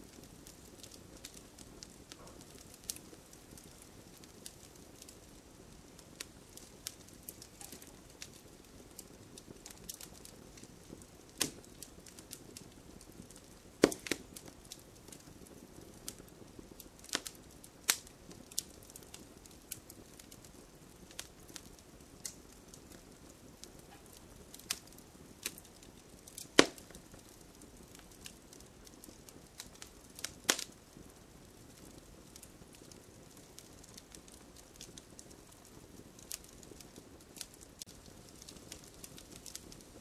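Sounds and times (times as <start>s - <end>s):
faint hiss: 0.0s - 40.0s
fire crackling and popping: 0.0s - 40.0s.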